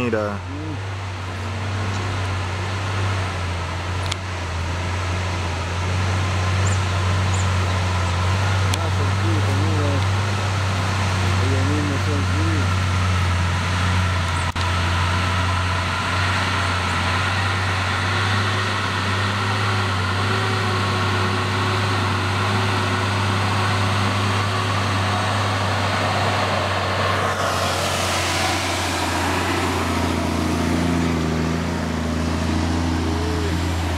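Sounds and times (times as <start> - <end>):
truck on dirt road: 0.0 - 33.9
tyre and road noise hiss: 0.0 - 33.9
vehicle engine droning: 0.0 - 33.9.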